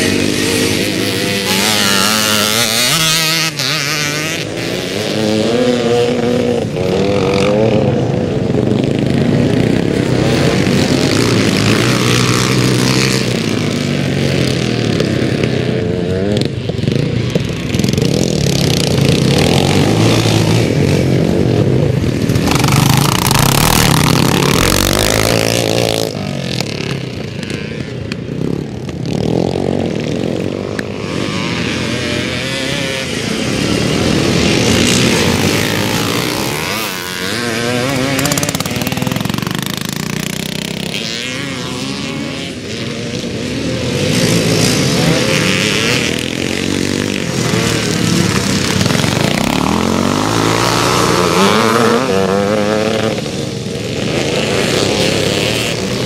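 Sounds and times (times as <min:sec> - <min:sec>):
motocross bike engines revving: 0:00.0 - 0:56.0.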